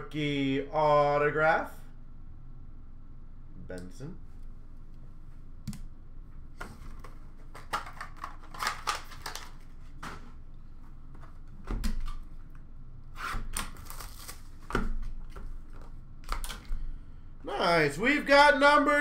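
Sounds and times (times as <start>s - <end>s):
cards clicking and rustling: 6.8s - 10.3s.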